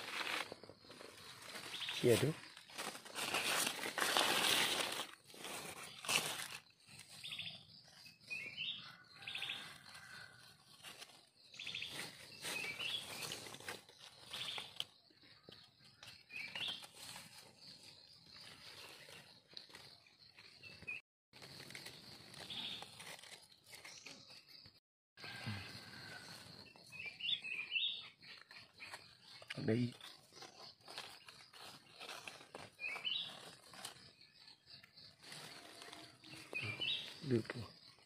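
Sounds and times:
dry leaves rustling and crackling: 0:00.0 - 0:07.4, 0:08.6 - 0:14.9, 0:20.6 - 0:24.2, 0:29.7 - 0:34.5, 0:35.2 - 0:37.4
birds chirping: 0:26.7 - 0:35.5, 0:36.1 - 0:38.0.

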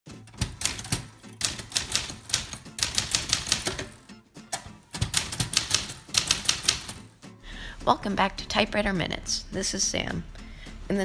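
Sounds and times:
manual typewriter typing: 0:00.3 - 0:04.0, 0:04.6 - 0:07.1.

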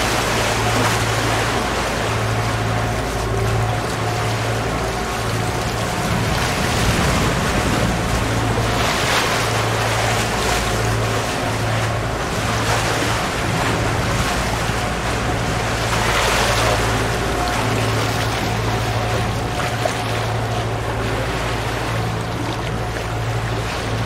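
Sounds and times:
low hum: 0:00.0 - 0:24.0
water rushing along hull: 0:00.0 - 0:24.0
wind on microphone: 0:03.6 - 0:24.0.

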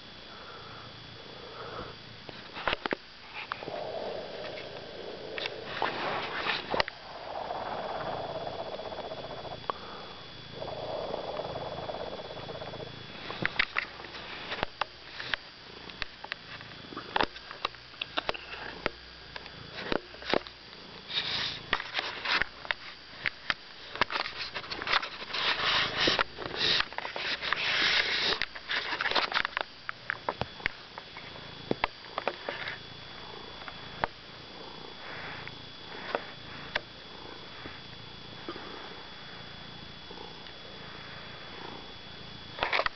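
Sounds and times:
cat purring: 0:00.3 - 0:16.0, 0:23.8 - 0:29.5, 0:30.5 - 0:42.9
cat sniffing at microphone: 0:24.4 - 0:28.4.

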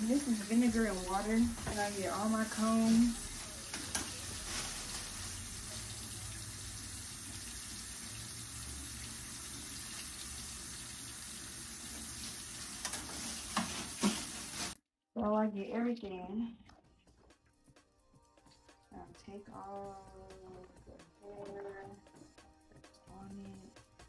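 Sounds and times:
water running from a faucet: 0:00.0 - 0:14.8.

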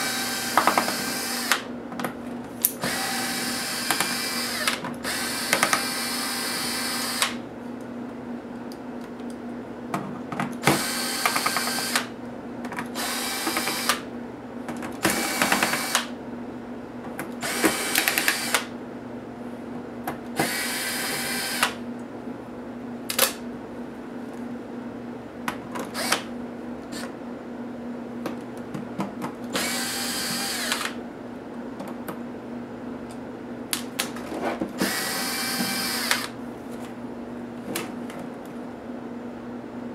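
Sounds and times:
electric screwdriver whirring: 0:00.0 - 0:01.6, 0:02.8 - 0:07.4, 0:10.6 - 0:12.1, 0:13.0 - 0:14.0, 0:15.1 - 0:16.1, 0:17.4 - 0:18.7, 0:20.4 - 0:21.8, 0:25.9 - 0:26.3, 0:29.5 - 0:31.0, 0:34.8 - 0:36.4.

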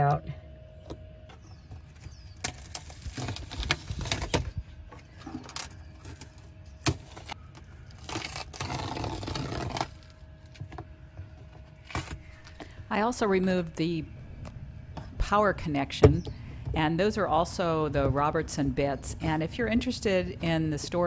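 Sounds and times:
cord scraping and tearing: 0:02.4 - 0:04.4, 0:05.2 - 0:10.6.

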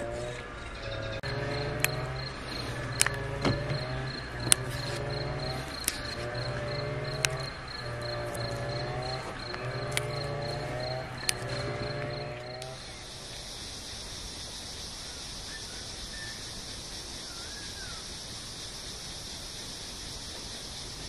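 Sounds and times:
cricket chirping: 0:00.0 - 0:21.0
bean pods snapping: 0:01.8 - 0:10.2.

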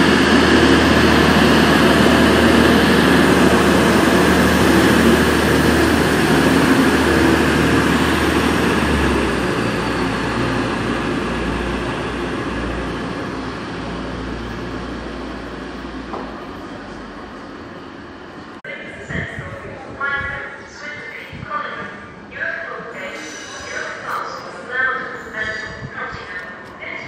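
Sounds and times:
diesel train engines running: 0:00.0 - 0:18.6.

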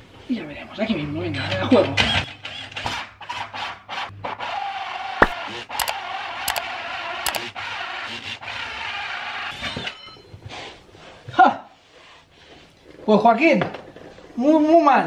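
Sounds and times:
sharp clicks: 0:05.2 - 0:06.6, 0:07.3 - 0:07.5.

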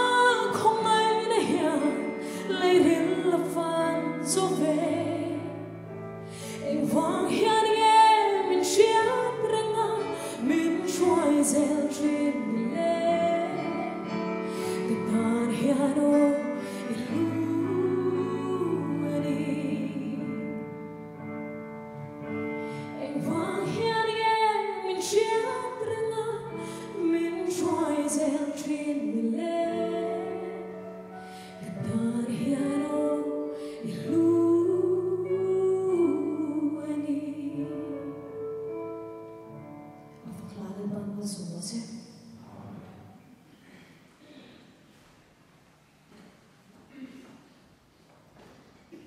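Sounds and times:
woman singing into a microphone: 0:00.0 - 0:05.7, 0:06.4 - 0:20.8, 0:22.7 - 0:30.8, 0:31.4 - 0:38.4.

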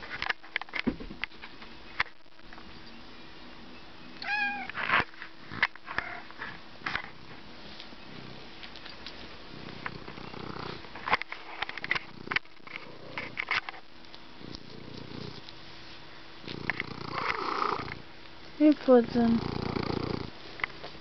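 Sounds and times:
cat meowing: 0:04.2 - 0:04.8.

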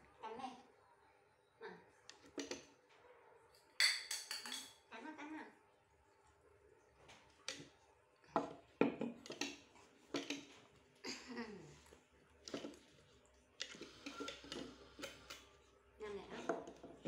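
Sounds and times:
cups knocking on tabletop: 0:03.8 - 0:04.8, 0:08.3 - 0:10.5, 0:16.4 - 0:17.0.

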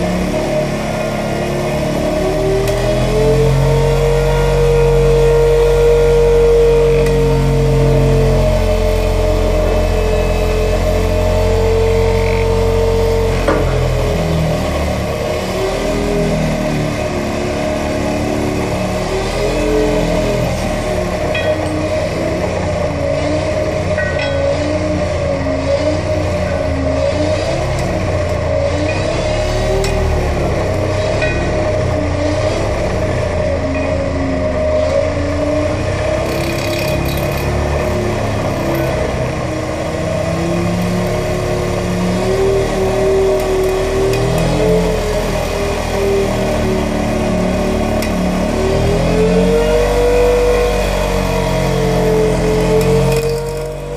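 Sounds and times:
diesel engine: 0:00.0 - 0:53.9
rising whine: 0:00.0 - 0:53.9
vibro hammer driving steel pile: 0:18.7 - 0:35.2
vibro hammer on steel pile: 0:21.3 - 0:22.0, 0:24.0 - 0:24.6, 0:31.1 - 0:31.7.

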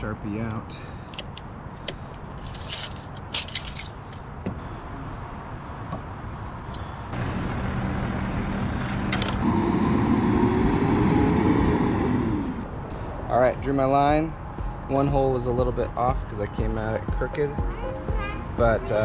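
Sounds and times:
vehicle engine running: 0:07.1 - 0:12.9.

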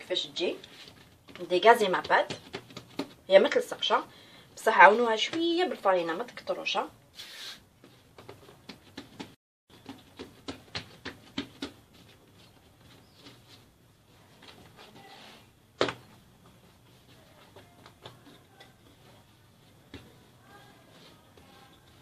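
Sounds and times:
hands patting dough: 0:00.3 - 0:04.1, 0:04.8 - 0:06.6, 0:07.7 - 0:22.0.

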